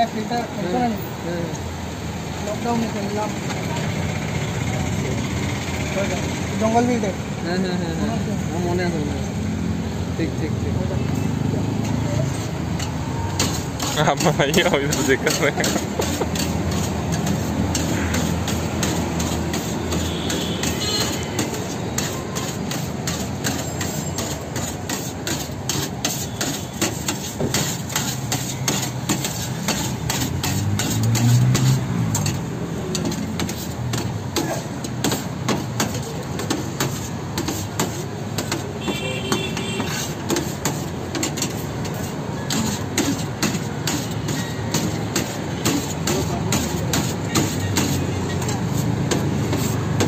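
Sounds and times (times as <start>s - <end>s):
cleaver chopping on steel tray: 12.8s - 50.0s.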